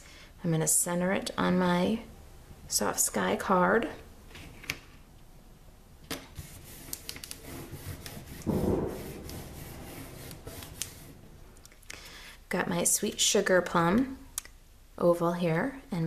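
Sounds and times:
paper rubbing against paper: 0:06.4 - 0:11.3.

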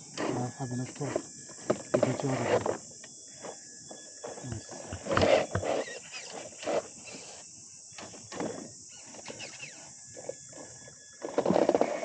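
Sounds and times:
electric motor of toy car: 0:05.0 - 0:07.5.

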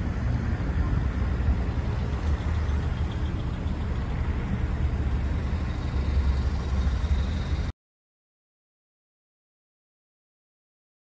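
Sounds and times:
road traffic rumble: 0:00.0 - 0:07.7.

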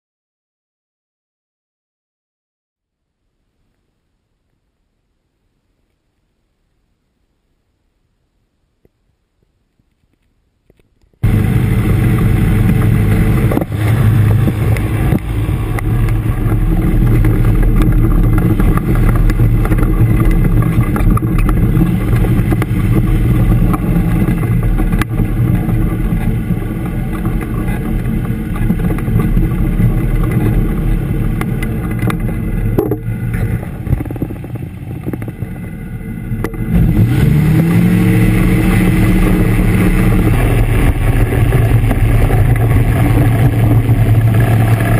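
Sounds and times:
ultralight engine and propeller: 0:10.7 - 0:44.9.

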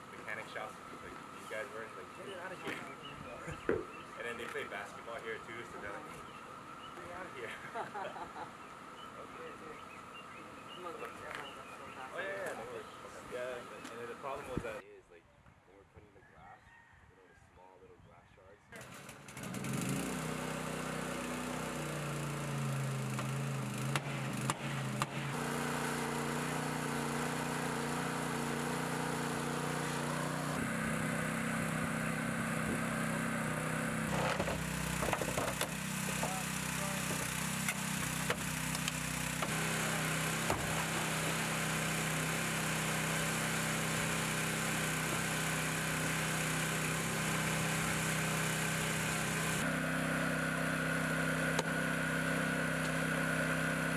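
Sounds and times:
small gasoline engine running: 0:18.8 - 0:53.9.

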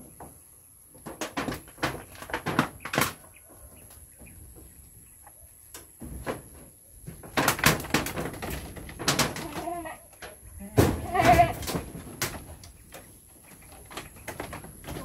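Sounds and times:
branches and pods knocking and cracking: 0:05.7 - 0:15.0.

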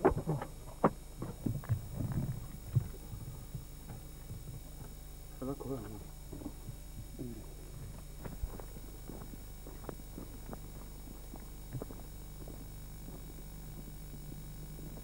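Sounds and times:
steady low hum: 0:00.0 - 0:15.0
footsteps on dirt track: 0:07.8 - 0:15.0.

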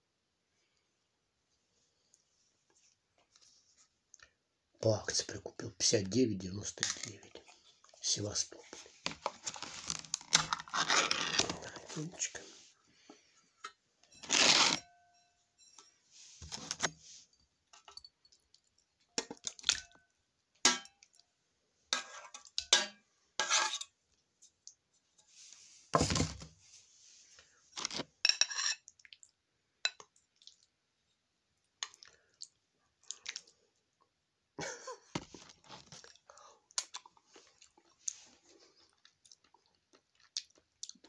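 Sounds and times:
metal spoon scraping tin can: 0:14.1 - 0:14.9.

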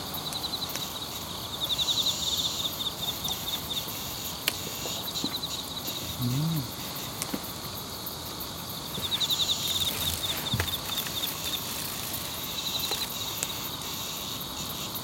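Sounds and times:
high-pitched insect trill: 0:00.0 - 0:15.0
insects chirping rapidly: 0:00.0 - 0:15.0.

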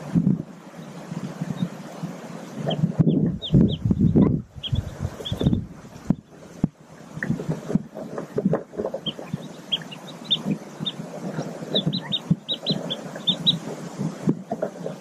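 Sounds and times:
ducklings peeping: 0:00.8 - 0:06.6, 0:07.2 - 0:15.0.

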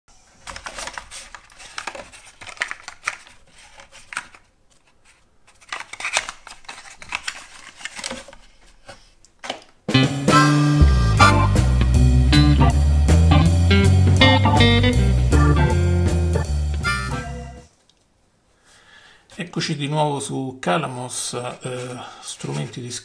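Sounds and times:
guitar music: 0:09.9 - 0:17.7.

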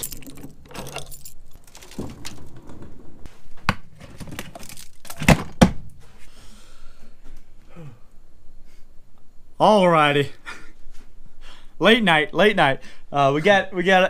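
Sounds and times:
keys jangling in padlock: 0:00.0 - 0:02.0.

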